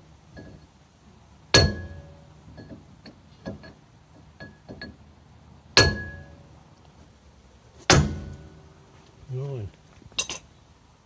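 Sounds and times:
chisel ringing metallic blow: 1.6s - 2.2s, 5.8s - 6.4s, 7.9s - 8.7s.

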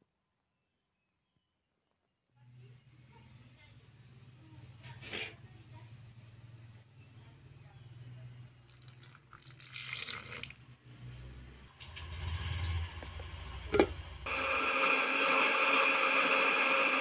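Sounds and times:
electric blender grinding: 14.3s - 17.0s.

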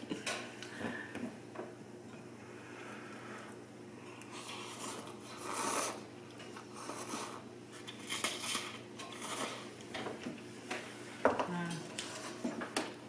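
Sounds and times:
person slurping noodles: 4.3s - 6.1s.

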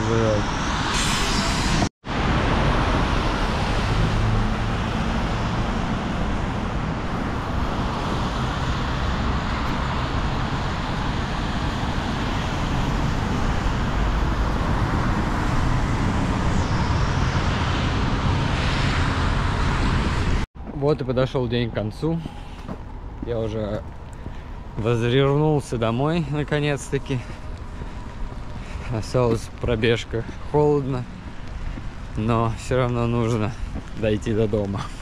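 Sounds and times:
cars rumbling past: 0.0s - 20.5s
tyres hissing on wet road: 0.1s - 20.5s, 24.0s - 35.0s.

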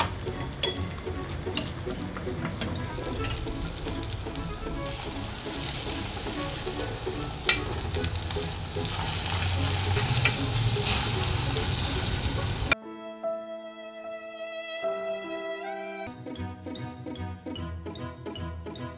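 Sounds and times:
egg sizzling in a pan: 0.0s - 12.8s
bowed string music: 0.0s - 18.9s.

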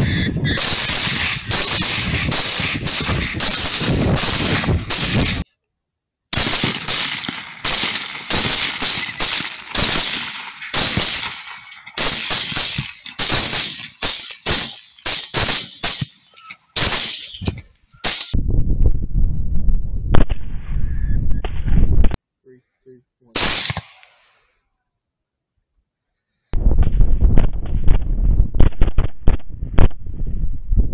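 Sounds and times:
rifle shots: 0.6s - 5.4s, 6.3s - 16.2s, 16.8s - 18.4s, 23.4s - 24.1s.

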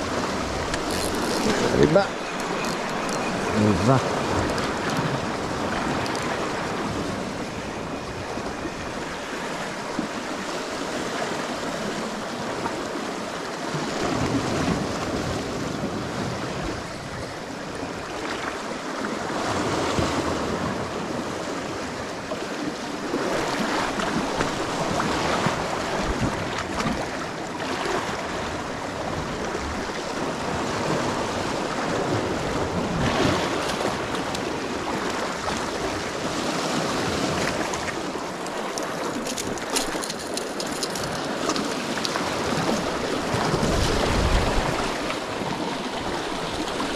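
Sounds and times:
waves splashing on rocks: 0.0s - 7.5s, 22.7s - 46.9s.

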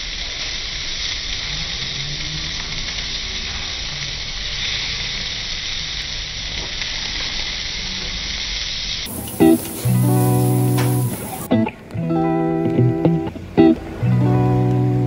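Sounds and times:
meat sizzling on a grill: 0.0s - 11.5s.

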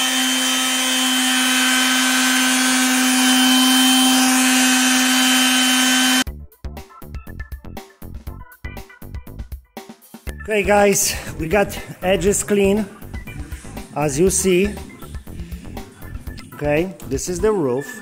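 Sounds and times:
palm sander sanding metal: 0.0s - 6.2s, 11.5s - 16.7s
rhythmic music with a beat: 6.2s - 10.5s, 11.5s - 17.4s.

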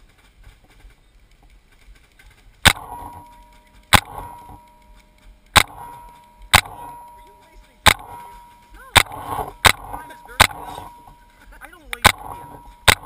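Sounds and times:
paintball marker shots: 5.5s - 13.0s.

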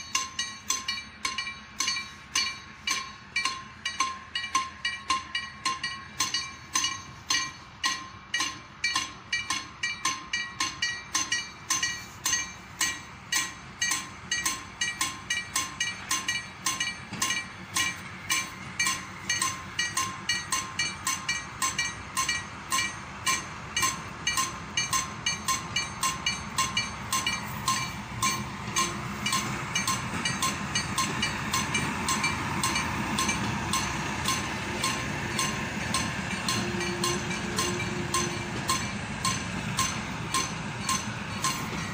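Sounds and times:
locomotive rumble: 0.0s - 41.9s.

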